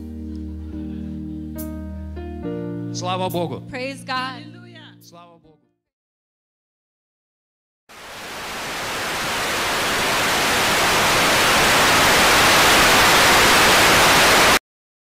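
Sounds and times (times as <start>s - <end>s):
television static hiss: 8.0s - 14.6s.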